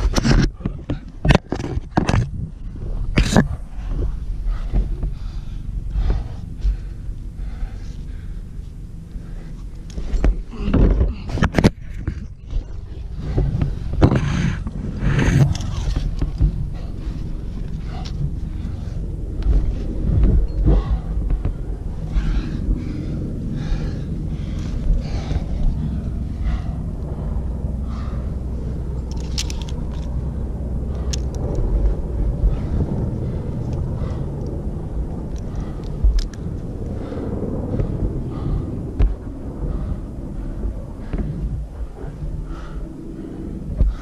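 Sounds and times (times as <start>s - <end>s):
wind rumble on microphone: 0.0s - 44.0s
person breathing hard: 2.7s - 44.0s
metallic carabiner clicks: 15.4s - 16.3s, 29.0s - 30.2s, 31.0s - 31.7s, 35.3s - 36.4s.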